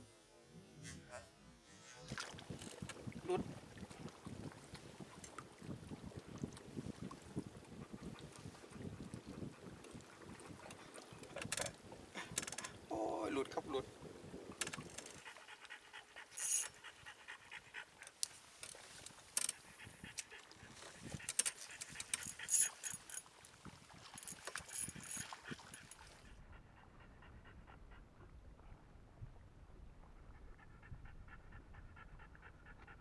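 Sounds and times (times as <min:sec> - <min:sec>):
dog panting: 0:07.8 - 0:11.4, 0:15.0 - 0:18.3, 0:19.4 - 0:23.2, 0:24.8 - 0:27.8, 0:30.5 - 0:33.0
fishing reel clicking and rattling: 0:11.4 - 0:11.7, 0:12.4 - 0:12.7, 0:16.4 - 0:16.8, 0:21.1 - 0:23.2, 0:24.2 - 0:26.0.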